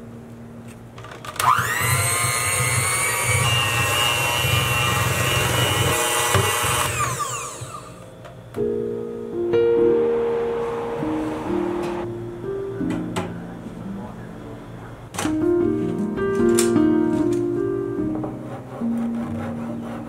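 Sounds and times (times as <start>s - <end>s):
electric hand mixer whining: 1.4s - 8.0s.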